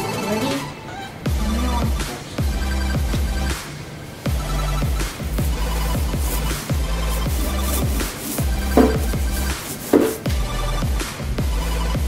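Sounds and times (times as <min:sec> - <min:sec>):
heavy kick drums: 0:04.3 - 0:11.6.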